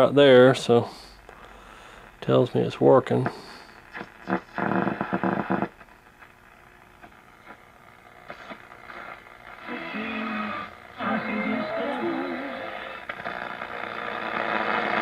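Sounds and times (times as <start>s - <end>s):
pitched radio tones: 0.0s - 15.0s
radio static and hiss: 0.0s - 15.0s.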